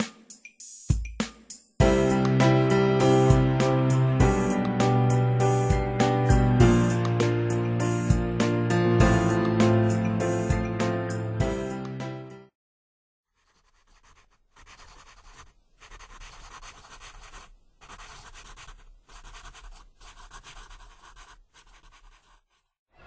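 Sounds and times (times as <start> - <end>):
chalk scratching on blackboard: 13.3 - 22.8.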